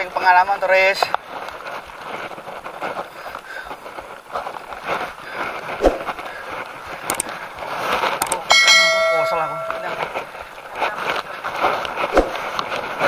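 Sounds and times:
bicycle rattling and clicking: 0.0 - 13.0
wind rushing over microphone: 5.6 - 6.2
sharp clicks: 7.0 - 7.4, 8.1 - 8.5.

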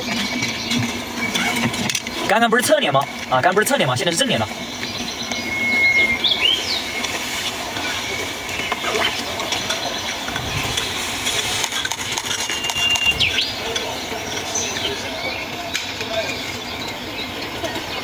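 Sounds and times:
high whistled chirps: 4.5 - 11.1, 12.4 - 15.5.

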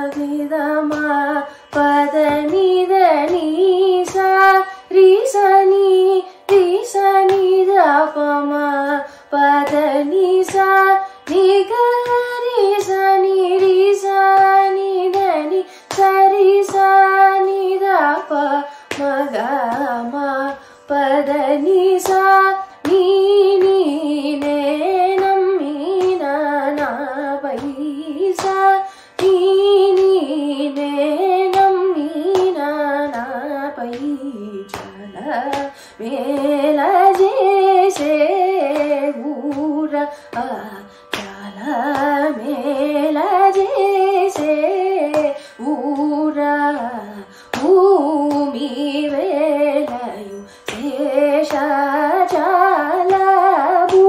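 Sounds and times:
woman singing: 0.0 - 54.0
singer breathing: 9.1 - 9.3, 15.6 - 15.9, 20.6 - 20.8, 28.8 - 29.2, 35.7 - 36.0, 45.4 - 45.6, 47.2 - 47.5, 50.4 - 50.7.

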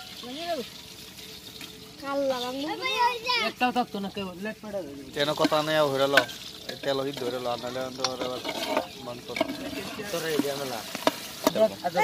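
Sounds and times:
ladle stirring in a pot: 0.0 - 2.8, 4.9 - 12.0
people talking: 0.2 - 0.7
metal clinks against pot: 5.2 - 11.8.

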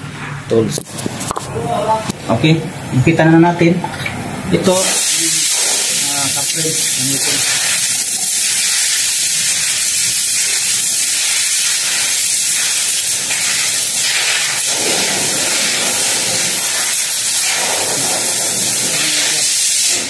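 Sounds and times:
pneumatic ratchet air hiss: 4.8 - 20.0.

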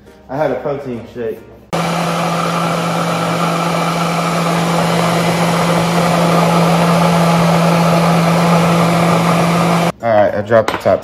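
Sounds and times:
blender whirring: 1.8 - 9.9.

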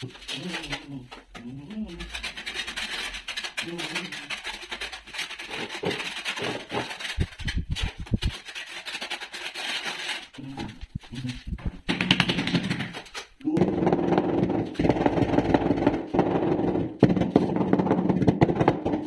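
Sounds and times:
trowel scraping tile adhesive: 0.0 - 11.4.

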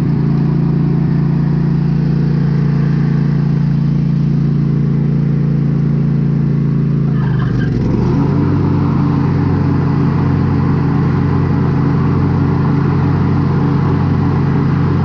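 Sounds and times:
riding mower engine running: 0.0 - 15.0.

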